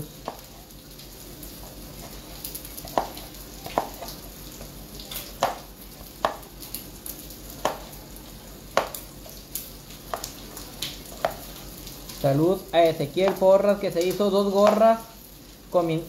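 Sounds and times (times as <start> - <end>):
knife knocking on cutting board: 6.2 - 6.4, 7.6 - 7.9.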